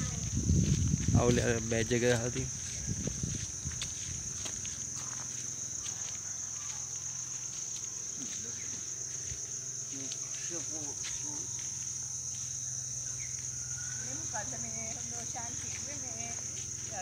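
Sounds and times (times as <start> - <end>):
insects buzzing: 0.0 - 17.0.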